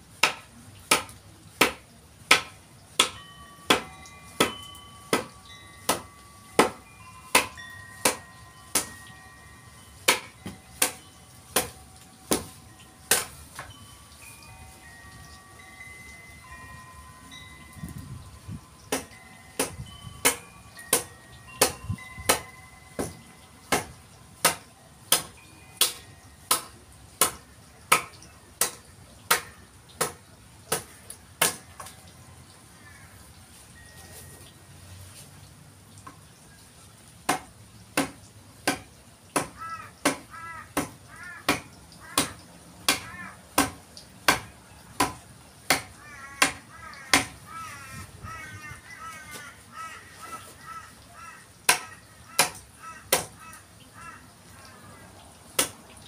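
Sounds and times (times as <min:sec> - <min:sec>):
mallet striking a chisel: 0:00.2 - 0:09.0, 0:10.0 - 0:13.7, 0:18.9 - 0:31.6, 0:41.5 - 0:47.4, 0:51.7 - 0:53.3.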